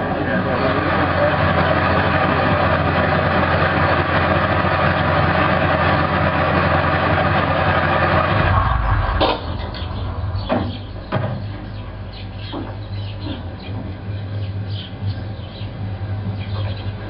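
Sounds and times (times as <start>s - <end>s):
jeep engine running: 0.0s - 17.0s
low rumble: 7.4s - 13.0s.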